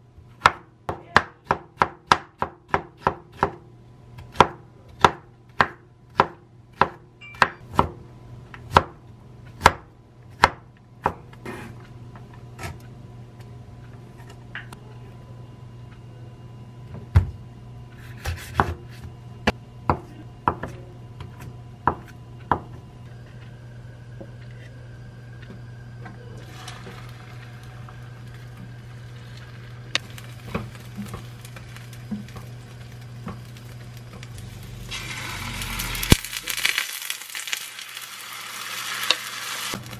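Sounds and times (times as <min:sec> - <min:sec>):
steady low hum: 0:03.1 - 0:37.2
knife chopping on wooden board: 0:04.2 - 0:08.0, 0:18.2 - 0:18.9.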